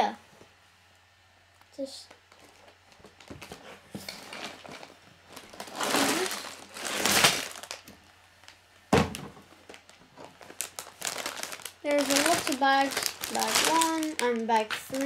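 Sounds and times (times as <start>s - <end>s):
plastic bags crinkling: 2.1s - 8.6s, 9.4s - 15.0s
thud on wooden table: 8.9s - 9.4s.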